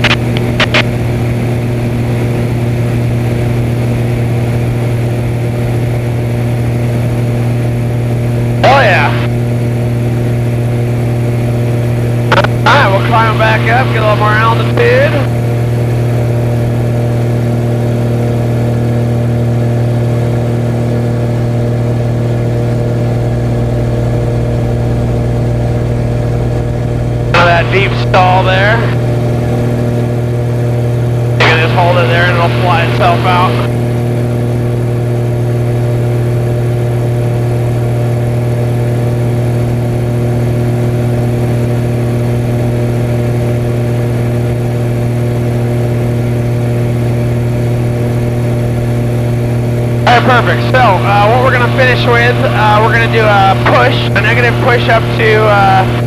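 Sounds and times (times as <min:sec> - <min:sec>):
plane engine and propeller droning: 0:00.0 - 0:56.0
person speaking: 0:08.6 - 0:09.3, 0:27.4 - 0:29.0, 0:31.4 - 0:33.7, 0:50.1 - 0:56.0.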